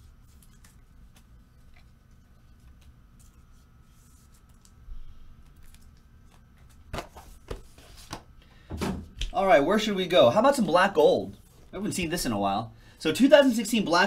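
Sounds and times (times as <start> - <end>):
cards and packaging rustling: 0.1 - 8.3.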